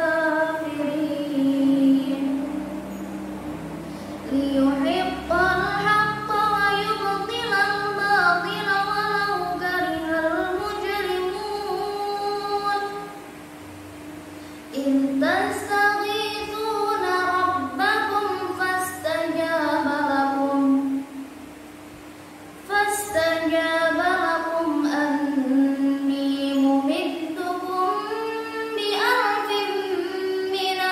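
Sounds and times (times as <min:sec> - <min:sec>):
girl reciting in sung style: 0:00.0 - 0:13.2, 0:14.7 - 0:21.1, 0:22.6 - 0:30.9.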